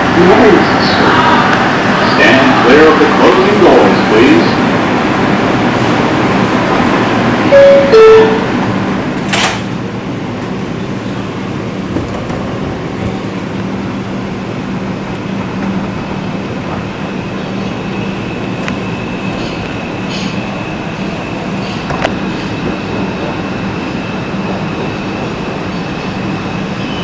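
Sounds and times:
subway train rumbling: 0.0s - 27.0s
train doors shutting: 5.6s - 27.0s
two-note door chime: 7.5s - 8.5s.

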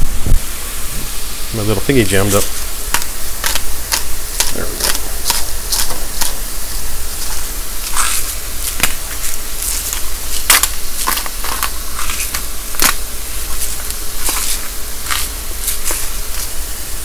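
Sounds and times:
mushrooms sizzling in butter: 1.1s - 17.0s
salt grinder crunching: 2.3s - 16.7s.

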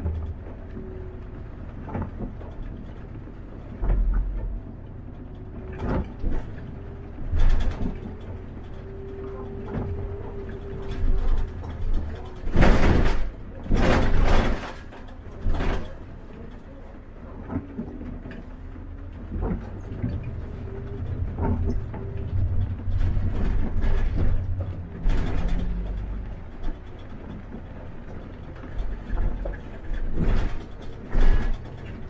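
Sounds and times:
bus engine rumble: 0.0s - 32.0s
knocks and rattles: 1.8s - 16.6s, 17.4s - 32.0s.

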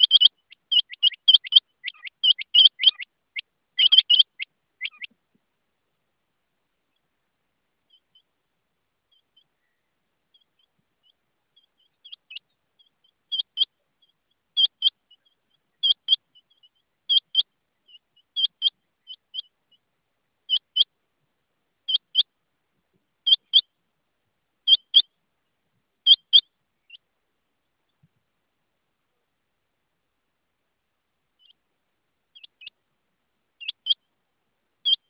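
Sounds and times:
quail calling: 0.0s - 5.2s, 9.1s - 19.6s, 20.5s - 20.9s, 21.9s - 22.3s, 23.2s - 23.7s, 24.6s - 25.1s, 26.0s - 27.0s, 32.3s - 32.8s, 33.6s - 34.0s.

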